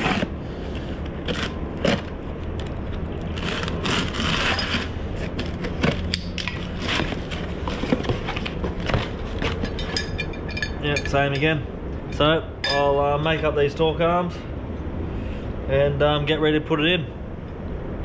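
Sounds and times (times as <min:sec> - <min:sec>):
box cutter slitting cardboard: 0:00.0 - 0:02.2, 0:03.3 - 0:09.5
knocks and scrapes of handling: 0:00.0 - 0:10.8
loose metal parts clinking: 0:04.5 - 0:12.9.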